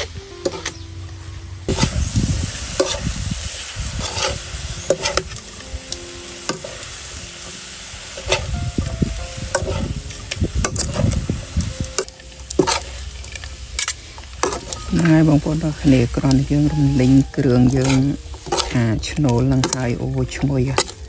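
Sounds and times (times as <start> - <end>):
food sizzling in a pan: 0.0 - 21.0
utensil stirring and scraping: 1.7 - 5.6, 9.5 - 10.0, 12.0 - 13.6, 17.0 - 21.0
utensil clacking against pan: 20.7 - 21.0.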